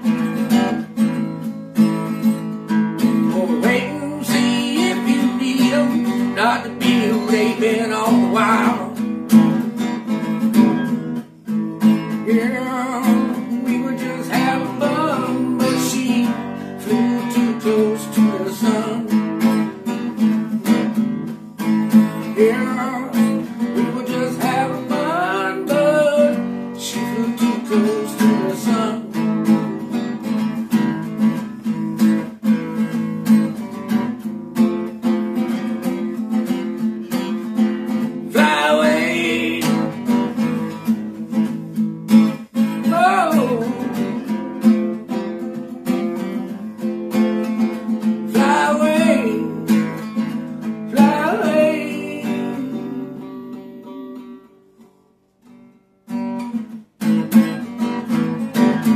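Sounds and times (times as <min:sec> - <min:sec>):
acoustic guitar strumming: 0:00.0 - 0:58.9.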